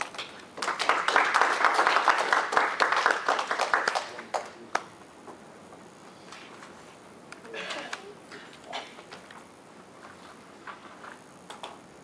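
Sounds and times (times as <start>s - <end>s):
small group applauding: 0.0s - 4.9s.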